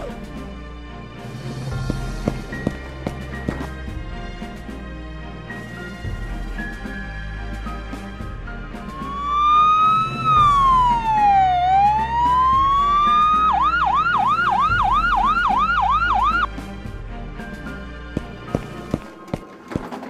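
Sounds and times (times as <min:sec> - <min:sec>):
background music: 0:00.0 - 0:20.0
ambulance siren: 0:08.8 - 0:16.6.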